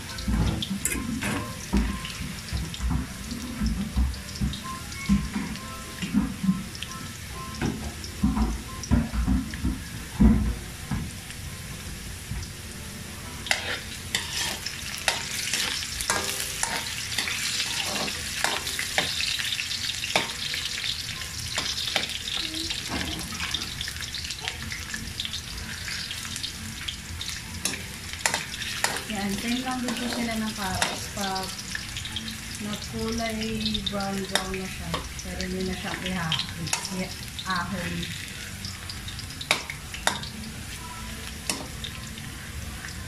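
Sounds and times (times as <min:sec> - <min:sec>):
potatoes sizzling in oil: 0:00.0 - 0:43.0
metal ladle scraping a wok: 0:13.5 - 0:19.1.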